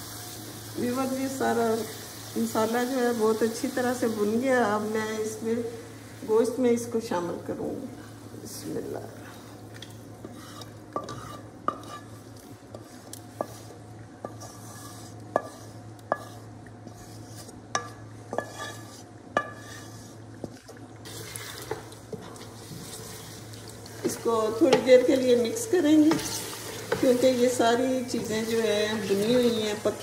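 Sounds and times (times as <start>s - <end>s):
metal spoon scraping frying pan: 10.2s - 20.2s.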